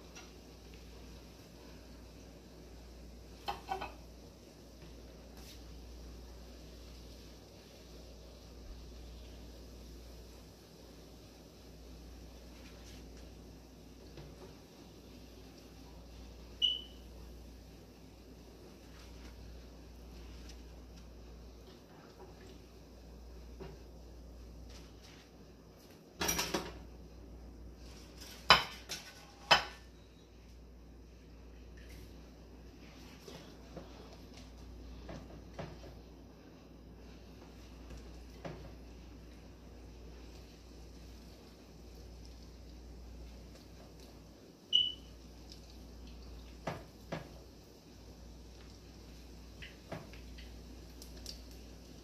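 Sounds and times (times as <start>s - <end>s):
oil frying hiss: 0.0s - 52.0s
short high beep: 16.6s - 17.0s.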